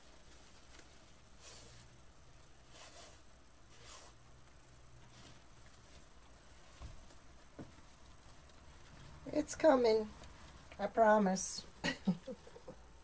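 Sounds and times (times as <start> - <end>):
ribbon rustling: 0.0 - 12.6
soft crinkles: 0.0 - 13.0.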